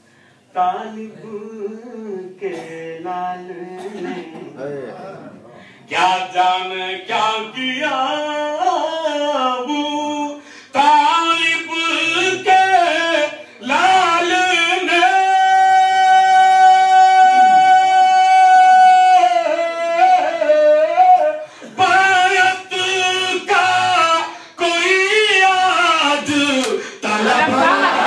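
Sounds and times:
man chanting through loudspeakers: 5.9s - 28.0s.

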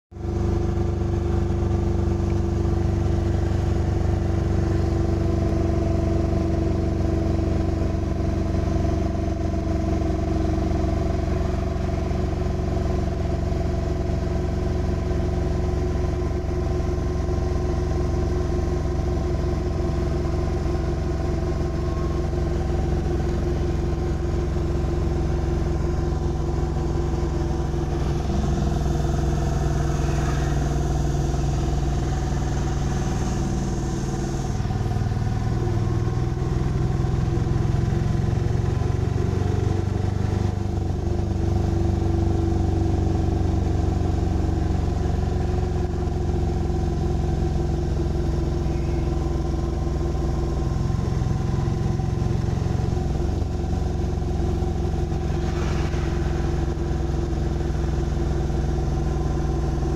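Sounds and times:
diesel engine droning: 0.1s - 59.9s
road and wind noise: 50.3s - 59.9s.

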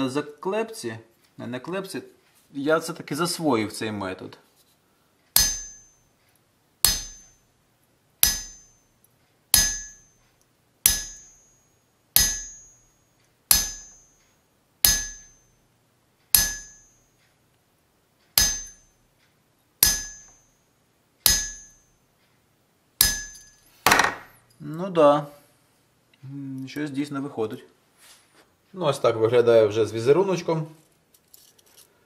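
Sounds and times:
hammer tapping chisel on steel: 5.3s - 7.5s, 8.2s - 15.6s, 16.3s - 17.4s, 18.3s - 20.6s, 21.2s - 22.0s, 23.0s - 24.4s.

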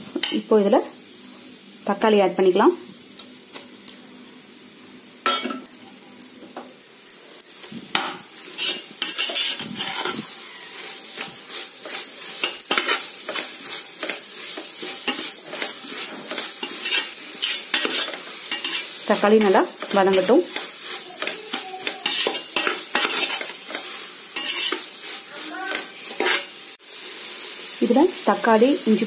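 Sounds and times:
food sizzling in oil: 0.0s - 29.0s
metal spatula scraping pot: 8.5s - 25.0s, 25.7s - 26.5s.

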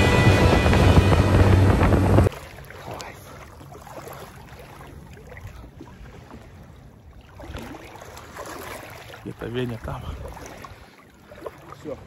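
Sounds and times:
motorboat engine humming: 0.0s - 5.8s
water noise: 0.0s - 12.0s
wind: 0.0s - 12.0s.

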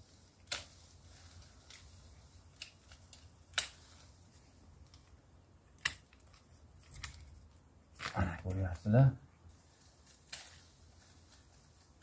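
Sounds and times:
pruning shears snipping: 0.4s - 0.9s, 2.5s - 4.1s.

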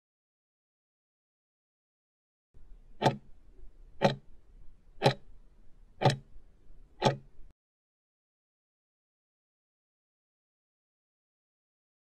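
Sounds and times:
clock ticking: 2.9s - 3.4s, 4.0s - 4.3s, 5.0s - 5.3s, 6.0s - 6.3s, 7.0s - 7.5s.

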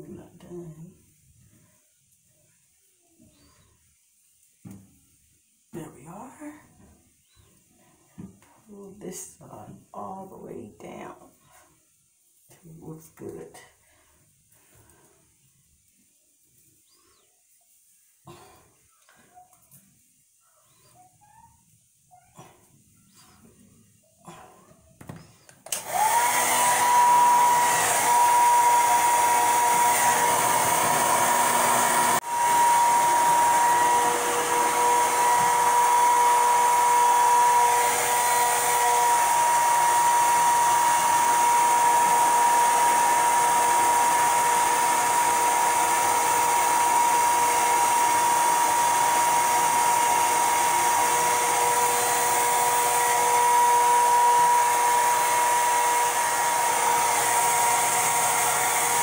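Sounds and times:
hair dryer blowing: 25.0s - 59.0s.

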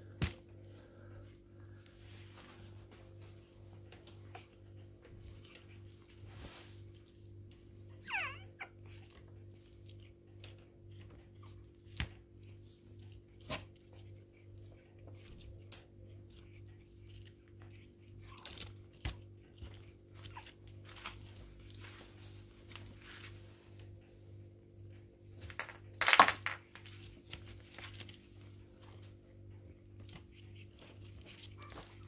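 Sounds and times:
high puppy yelp: 7.9s - 9.2s, 20.1s - 21.2s, 31.5s - 32.0s
light scuffling: 18.9s - 24.2s.

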